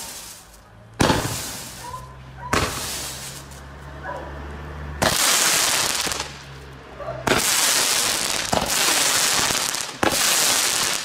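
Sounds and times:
firework shots popping: 0:00.0 - 0:01.8, 0:02.5 - 0:03.6, 0:05.0 - 0:06.5, 0:07.2 - 0:11.0
rush of firework sparks: 0:00.0 - 0:03.7, 0:05.0 - 0:06.5, 0:07.2 - 0:11.0.

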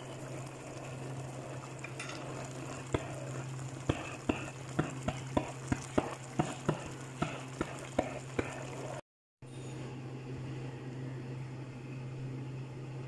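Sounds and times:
thick sauce bubbling and popping: 0:00.0 - 0:09.0
steady low hum: 0:00.0 - 0:13.0.

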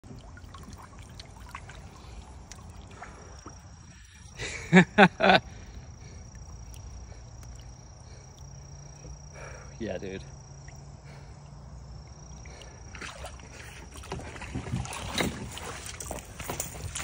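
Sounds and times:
water dripping: 0:00.0 - 0:09.3.

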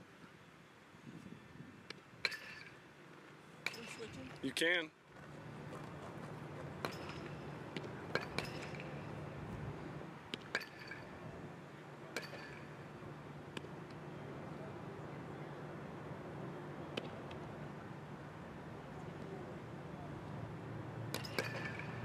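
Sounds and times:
baseballs hitting catcher's mitt: 0:06.8 - 0:09.0, 0:12.1 - 0:12.7, 0:21.1 - 0:22.0.

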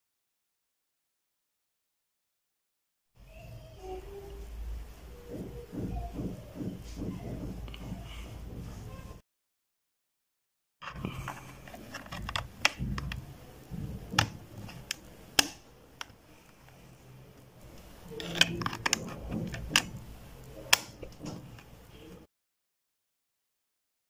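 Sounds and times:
plastic clicks: 0:10.8 - 0:16.8, 0:17.6 - 0:21.8
fingertip handling noise: 0:10.8 - 0:22.1.

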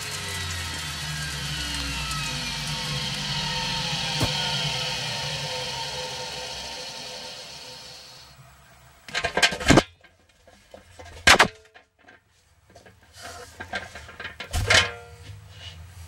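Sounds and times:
central vacuum running: 0:00.0 - 0:09.1.

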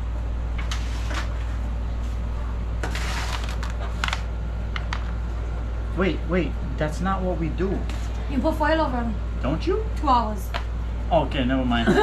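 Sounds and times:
foil crinkling: 0:02.8 - 0:04.2.

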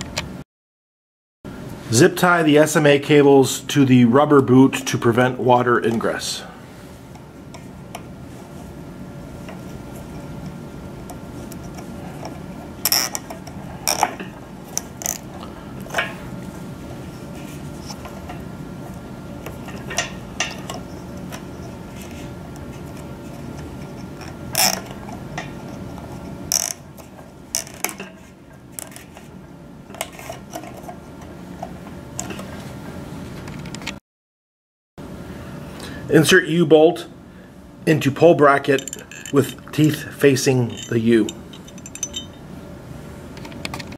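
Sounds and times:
low room hum: 0:01.5 - 0:34.0, 0:35.0 - 0:43.9
zip ties ratcheting: 0:24.5 - 0:24.8, 0:26.5 - 0:26.8.

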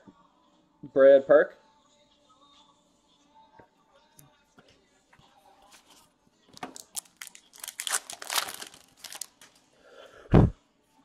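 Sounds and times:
foil wrapper crinkling and tearing: 0:06.6 - 0:09.6.

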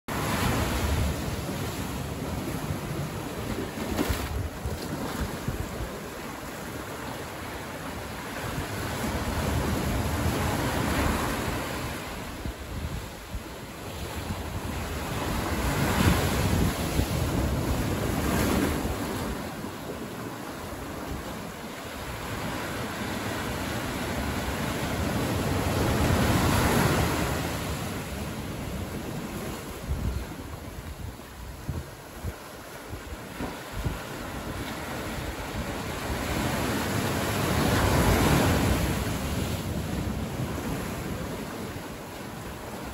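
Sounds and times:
ocean waves washing on beach: 0:00.1 - 0:42.9.

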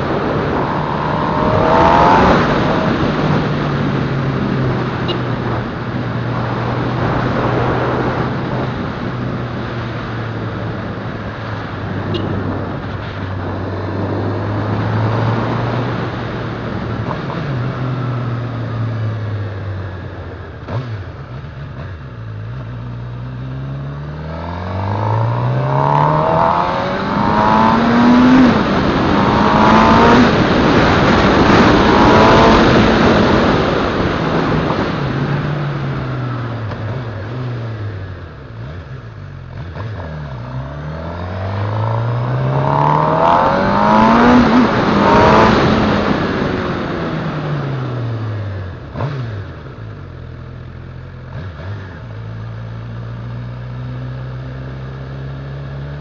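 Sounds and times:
wind rush: 0:00.0 - 0:17.5, 0:24.5 - 0:37.2, 0:40.9 - 0:48.1
motorcycle engine accelerating: 0:00.0 - 0:56.0.

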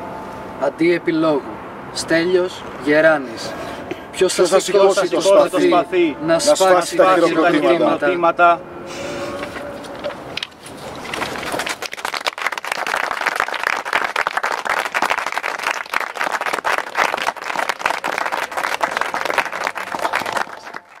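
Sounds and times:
audience applauding: 0:11.2 - 0:21.0.

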